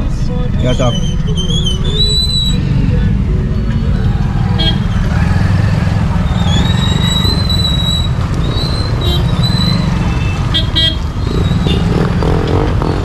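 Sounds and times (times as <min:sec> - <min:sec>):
motorbikes and rickshaws moving off: 0:00.0 - 0:13.0
high whistle-like tone: 0:00.6 - 0:03.0, 0:06.2 - 0:10.4.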